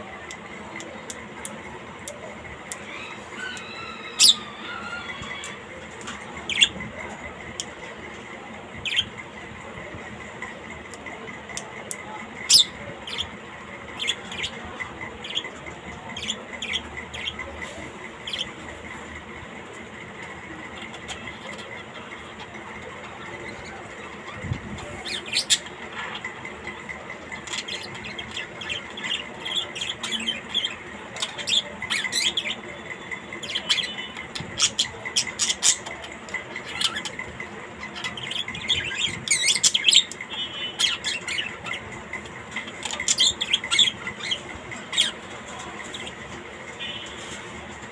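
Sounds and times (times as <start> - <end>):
parrot squawking and chirping: 2.7 - 7.1, 12.4 - 17.5, 20.6 - 46.2.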